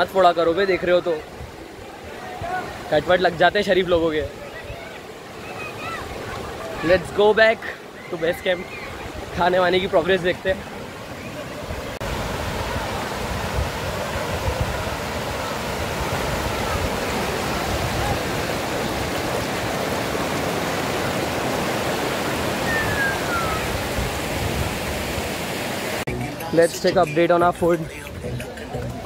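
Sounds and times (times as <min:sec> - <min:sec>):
water rushing in a rocky stream: 0:00.0 - 0:28.7
short falling whistle: 0:22.6 - 0:23.7.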